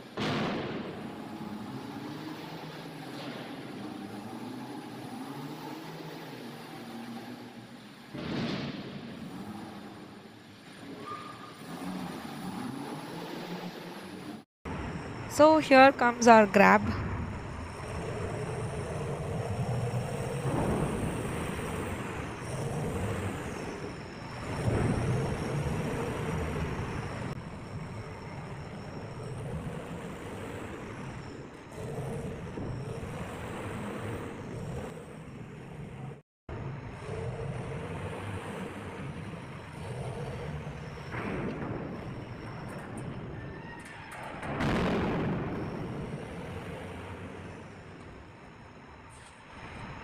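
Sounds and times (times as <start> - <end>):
diesel loader engine running: 0.0 - 43.4.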